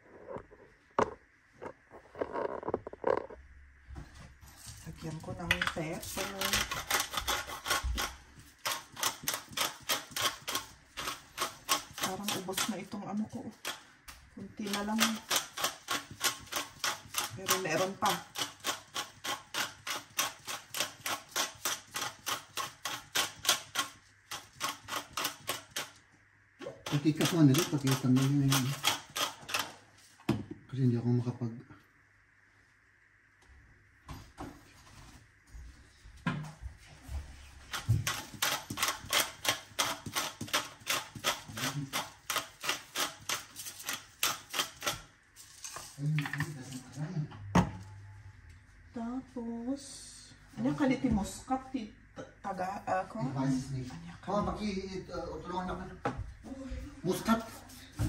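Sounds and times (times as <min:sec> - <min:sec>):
pepper mill clicking: 0:05.5 - 0:12.8, 0:14.6 - 0:25.9, 0:26.8 - 0:29.7, 0:37.7 - 0:45.0.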